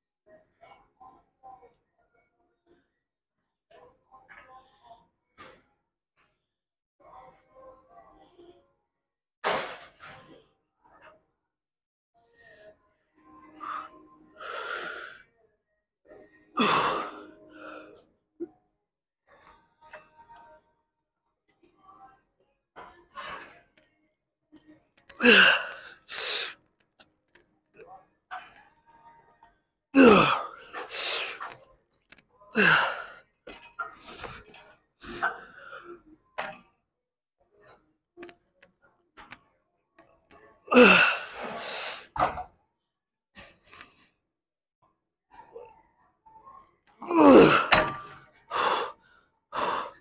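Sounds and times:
man straining breathing: 25.2s - 26.6s, 32.6s - 33.2s, 40.7s - 42.1s, 48.5s - 50.0s.

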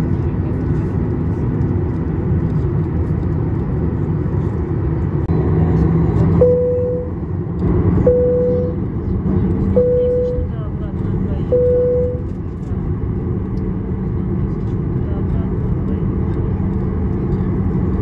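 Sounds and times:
jet engines rumbling in cabin: 0.0s - 18.0s
single chime tone: 8.1s - 8.8s.

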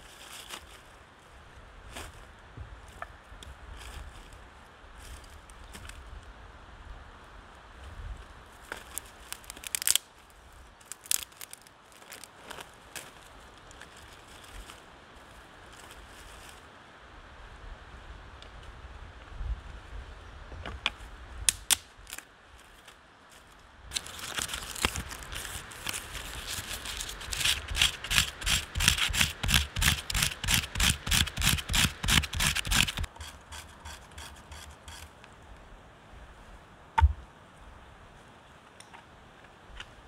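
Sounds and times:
hand tool rasping on wood: 27.3s - 35.1s.

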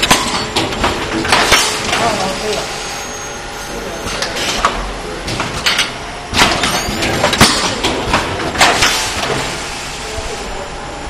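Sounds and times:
machine clacks: 0.0s - 2.6s, 4.0s - 9.6s
packaging machine humming: 0.0s - 11.0s.

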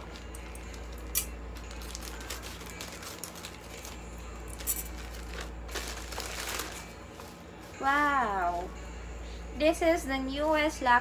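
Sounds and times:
plastic bag crinkling: 0.0s - 4.0s, 4.6s - 7.0s.

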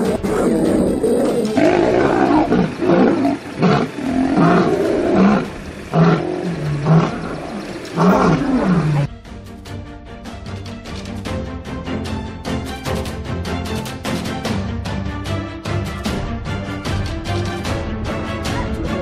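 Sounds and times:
music: 0.0s - 6.0s, 6.6s - 19.0s
big cats growling and roaring: 0.0s - 9.1s.

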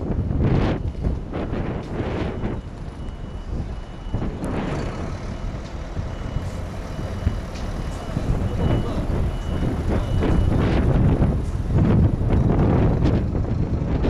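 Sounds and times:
large vehicle engines rumbling: 0.0s - 14.0s
reversing alarm beeping: 0.5s - 11.3s.

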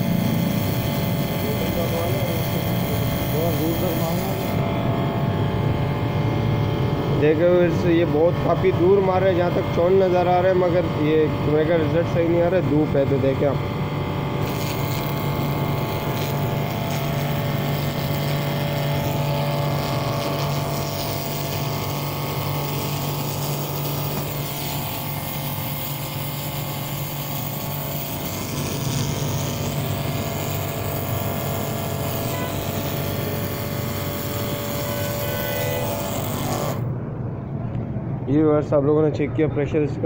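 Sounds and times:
water jet hissing: 0.0s - 4.6s, 14.3s - 36.8s
pump motor humming: 0.0s - 36.9s.

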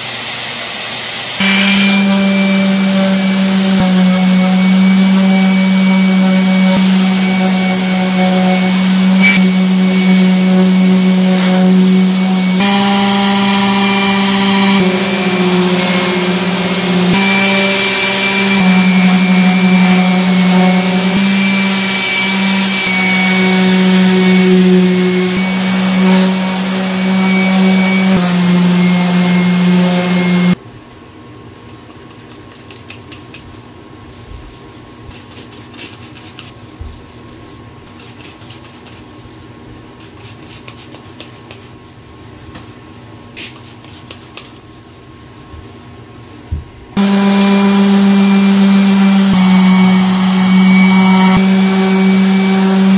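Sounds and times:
orbital sander running on wood: 1.2s - 30.6s, 47.0s - 52.9s.

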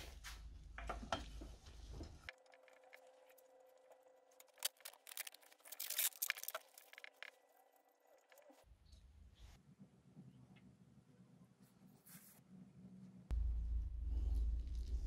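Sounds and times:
faint steady hum: 8.6s - 15.0s.

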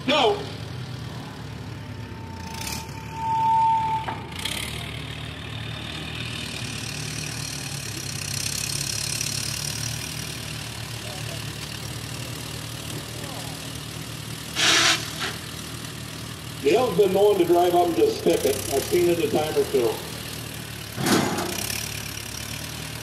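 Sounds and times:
tractor engine running: 0.0s - 23.0s
high squeal: 2.0s - 4.4s, 14.6s - 15.4s.

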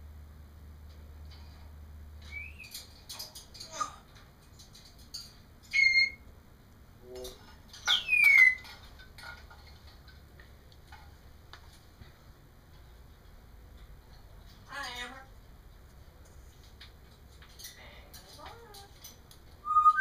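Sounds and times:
parrot whistling: 2.3s - 2.7s, 5.7s - 6.2s, 7.9s - 8.6s, 19.6s - 20.0s
parrot clicking and chirping: 4.6s - 6.2s, 7.8s - 10.2s.

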